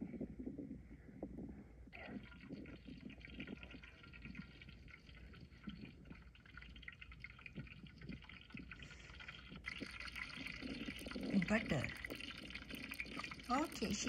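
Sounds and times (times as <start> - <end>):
butter sizzling in a pot: 3.1 - 14.0.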